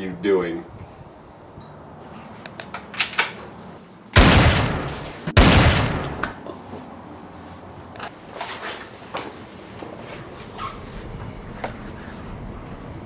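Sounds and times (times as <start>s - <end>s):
gunshots: 4.2s - 6.3s.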